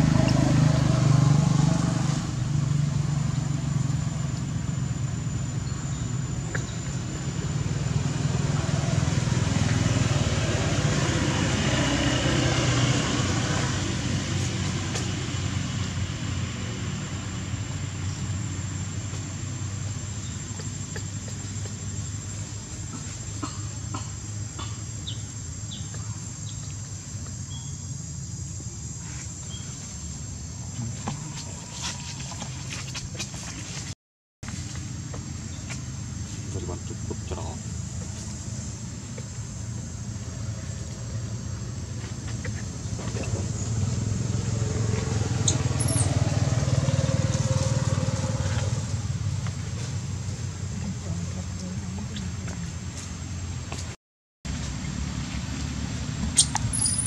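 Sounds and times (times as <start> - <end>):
vehicle engine passing by: 0.0 - 20.2, 36.2 - 53.9
high insect drone: 0.0 - 33.9, 34.5 - 53.8.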